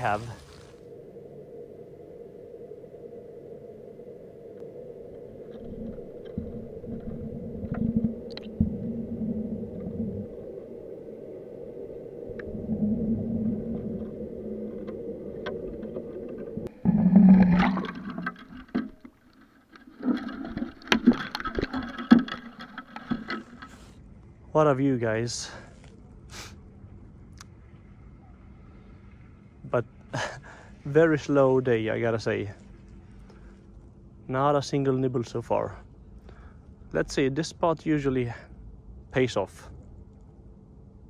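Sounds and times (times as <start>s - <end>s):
deep underwater rumble: 0.0s - 24.5s
muffled underwater hum: 0.0s - 37.0s.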